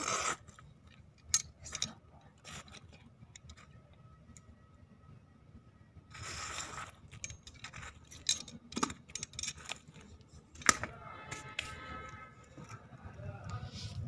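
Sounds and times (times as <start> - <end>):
metal tongs scraping coals: 6.1 - 12.8.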